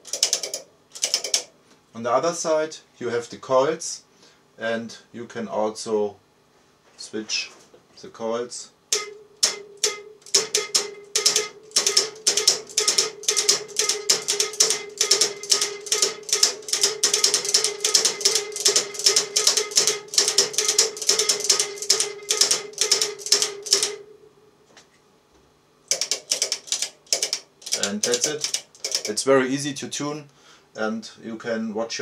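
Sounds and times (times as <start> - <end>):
relays clicking rapidly: 0.0 - 1.5, 8.9 - 24.0, 25.9 - 29.2
steady tone: 23.6 - 24.7.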